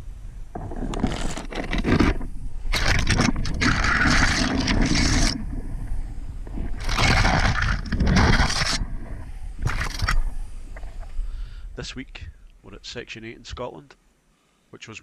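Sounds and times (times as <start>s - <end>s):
branches rustling against camera: 0.0s - 11.3s
low steady rumble: 0.0s - 14.2s.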